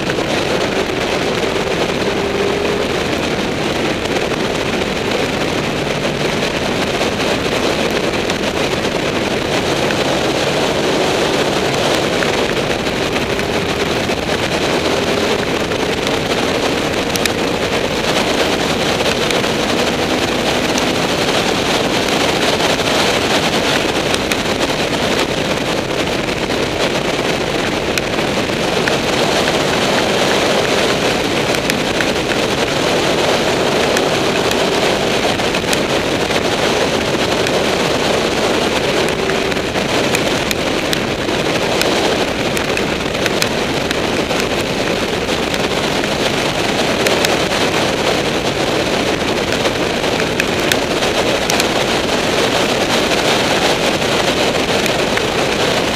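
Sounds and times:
motorcycle engine droning: 0.0 - 55.9
wind rushing over microphone: 0.0 - 55.9.

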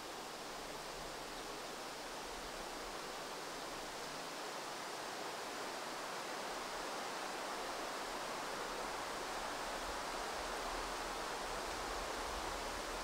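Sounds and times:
outdoor background hiss: 0.0 - 13.0.

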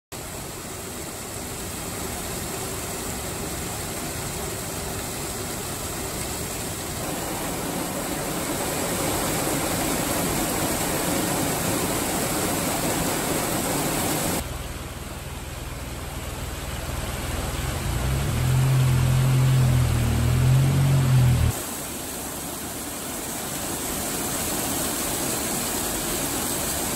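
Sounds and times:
water cascading over rocks: 0.1 - 26.9
low droning hum: 14.4 - 21.6.

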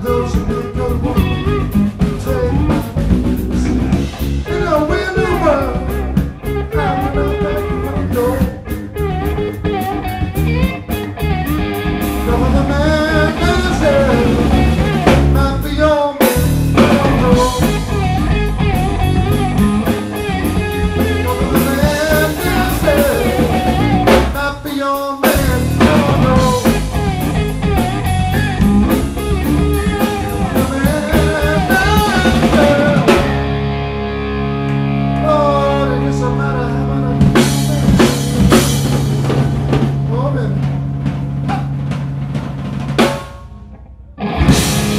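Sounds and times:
blues-rock band playing: 0.0 - 44.9
electric guitar lead with bent notes: 0.0 - 44.9.

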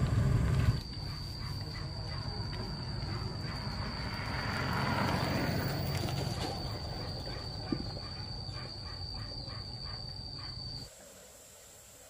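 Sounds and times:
small motorbike passing: 0.0 - 0.9, 2.2 - 7.7.

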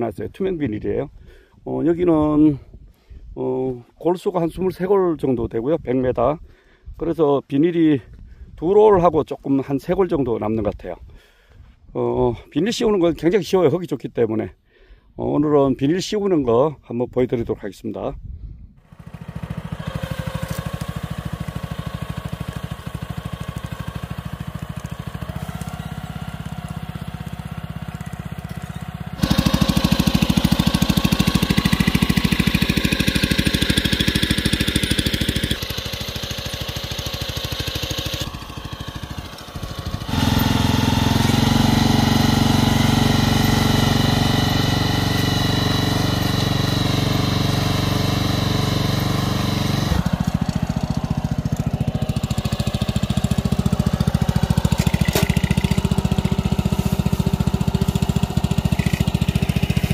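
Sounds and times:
small engine running: 18.8 - 59.9.

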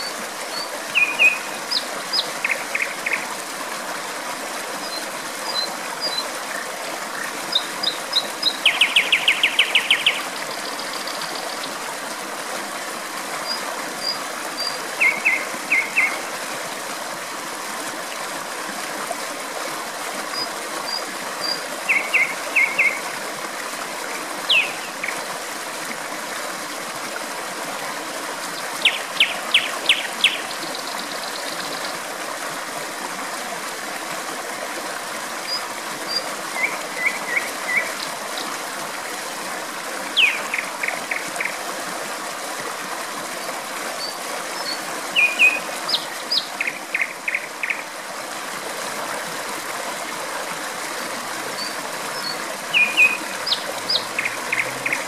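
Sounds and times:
water rushing: 0.0 - 55.0
nightingale singing: 0.9 - 2.9, 7.5 - 10.2, 24.5 - 24.9, 40.2 - 40.6, 45.2 - 47.8, 52.2 - 55.0.

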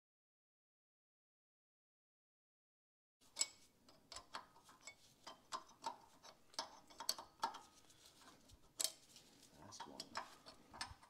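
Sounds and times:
metallic clicks and clinks: 3.3 - 7.7, 8.8 - 9.1, 9.8 - 11.0.

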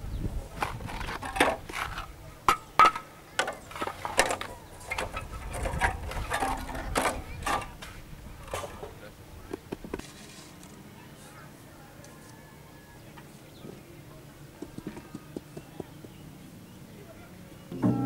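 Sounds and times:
concrete blocks knocking and scraping: 0.5 - 10.8, 14.6 - 16.2.

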